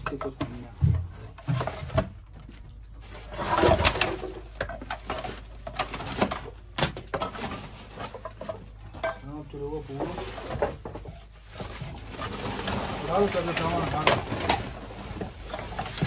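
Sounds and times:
sacks and paper rustling: 0:00.0 - 0:16.0.

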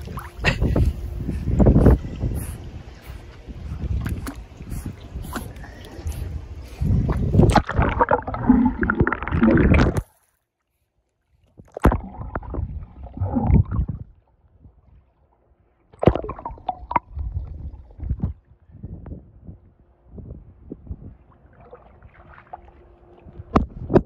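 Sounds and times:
muffled underwater gurgles: 0:00.0 - 0:10.0, 0:11.8 - 0:14.2
water sloshing against microphone: 0:00.0 - 0:18.5, 0:20.9 - 0:24.0.

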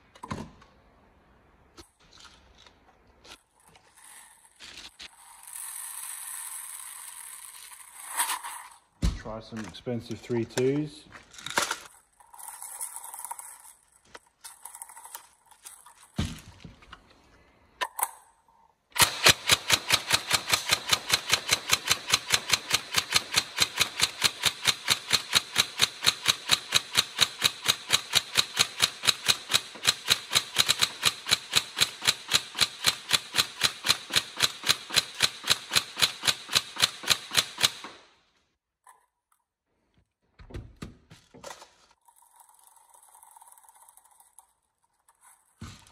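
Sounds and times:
airsoft rifle full-auto rattle: 0:19.0 - 0:38.2.

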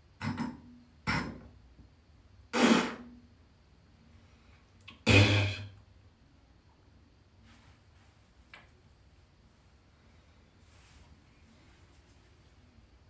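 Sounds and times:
man coughing: 0:05.0 - 0:05.7.

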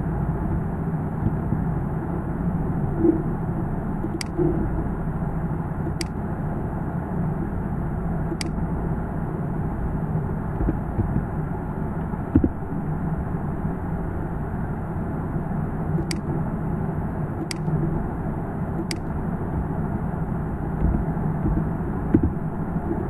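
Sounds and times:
dull low thump: 0:00.5 - 0:01.6, 0:10.6 - 0:11.4, 0:12.2 - 0:12.8, 0:20.8 - 0:23.0
computer mouse clicks: 0:16.0 - 0:16.3, 0:17.4 - 0:17.7, 0:18.8 - 0:19.1.

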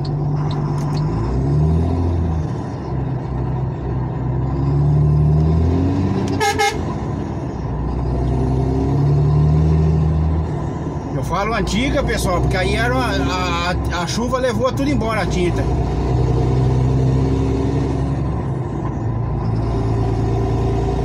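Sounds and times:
car engine with loud exhaust: 0:00.0 - 0:21.0
car horn toot: 0:06.3 - 0:06.8.

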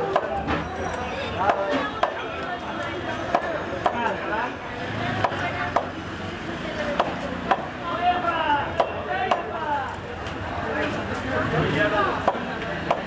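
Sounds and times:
knife chopping fish on wood: 0:07.0 - 0:07.7, 0:12.2 - 0:13.0.

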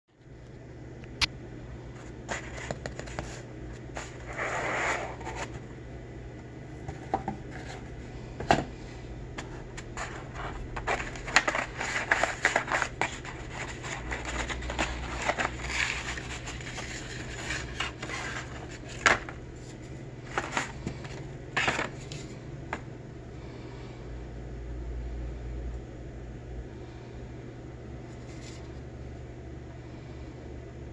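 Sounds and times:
low steady hum: 0:00.1 - 0:30.9
cardboard box being opened: 0:09.9 - 0:19.2.

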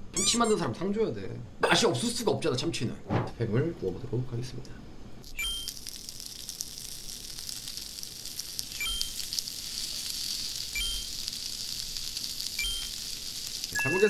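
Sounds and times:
meat sizzling in a pan: 0:05.4 - 0:14.0.

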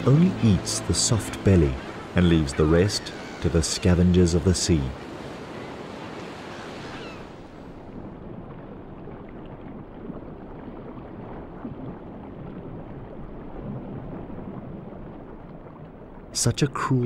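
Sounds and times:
muffled underwater ambience: 0:00.0 - 0:05.7
small waves washing: 0:00.0 - 0:17.0.

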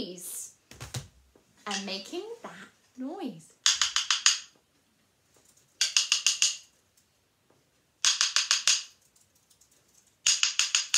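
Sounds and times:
wooden sticks tapping in rolls: 0:00.7 - 0:02.2, 0:03.6 - 0:10.9.

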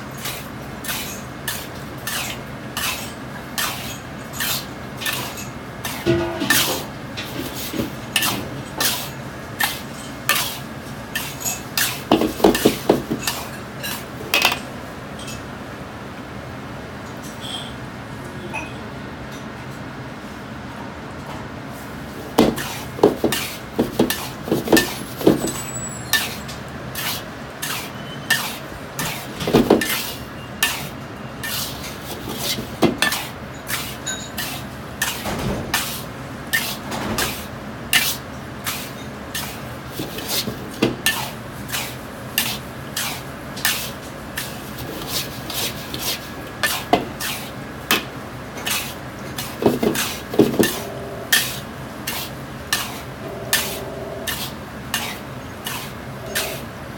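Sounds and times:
metal spatula scraping in wok: 0:22.6 - 0:56.7.

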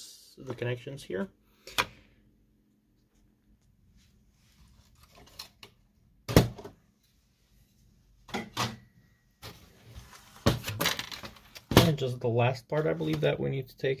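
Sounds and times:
plastic parts knocking and clattering: 0:10.4 - 0:12.0.

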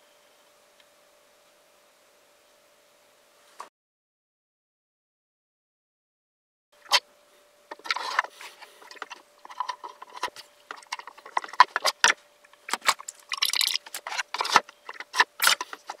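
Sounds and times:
faint steady hum: 0:00.0 - 0:03.7, 0:06.8 - 0:16.0
wood and metal clicks and knocks: 0:07.7 - 0:16.0.

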